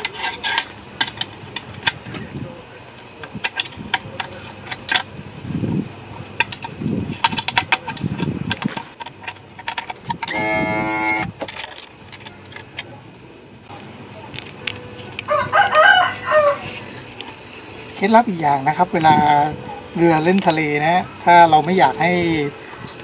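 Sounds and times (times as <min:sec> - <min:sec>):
loud steady tone: 0:10.2 - 0:11.4.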